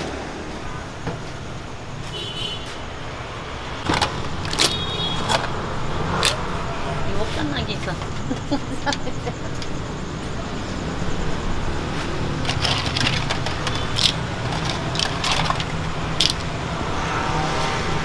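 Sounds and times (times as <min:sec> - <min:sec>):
clam shells clattering on metal: 0:12.4 - 0:16.6.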